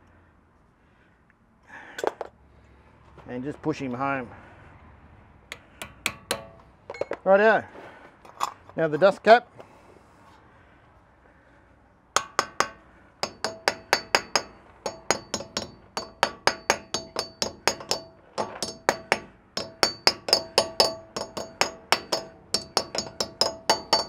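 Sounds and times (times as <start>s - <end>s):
hammer striking metal cap: 5.5s - 7.2s, 12.2s - 24.0s.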